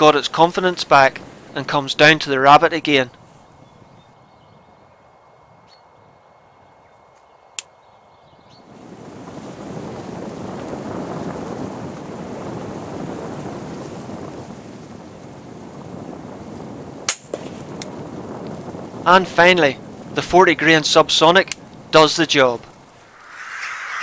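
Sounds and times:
steady rushing noise: 22.4 - 24.0.

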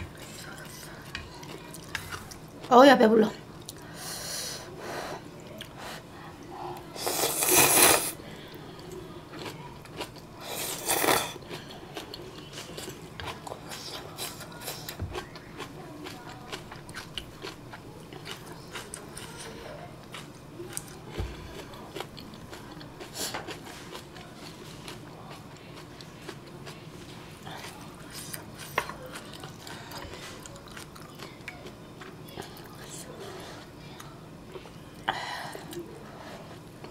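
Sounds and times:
chewing with wet clicks: 3.6 - 3.9, 8.7 - 10.3, 11.4 - 26.8, 27.6 - 32.9
slurping noodles: 7.0 - 8.2, 10.4 - 11.4.

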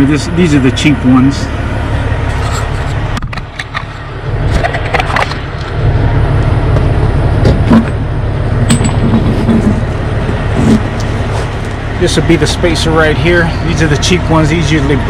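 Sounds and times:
steady low rumble: 0.0 - 15.0
knocks and scrapes of truck wheel: 2.2 - 5.8, 6.7 - 11.9.

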